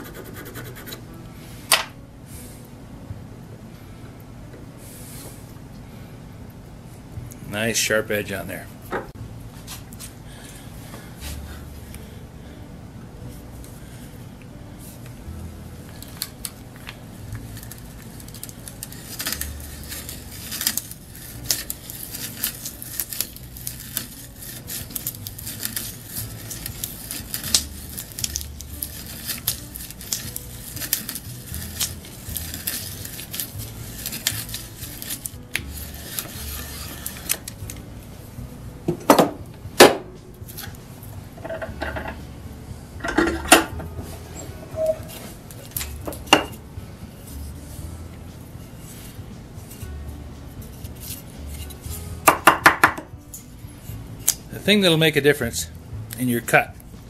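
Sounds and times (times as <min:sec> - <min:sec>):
auger bit crackling through wood: 0:15.9 - 0:38.0, 0:43.1 - 0:46.7.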